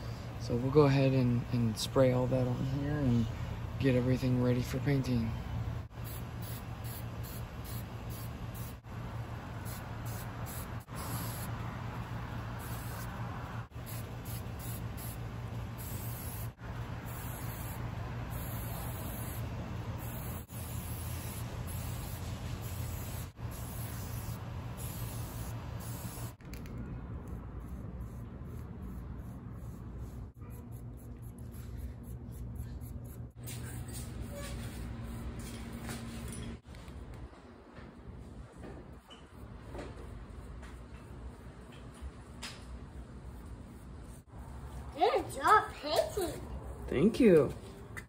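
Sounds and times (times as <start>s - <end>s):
aerosol can spraying hiss: 17.1s - 19.4s, 20.0s - 26.4s.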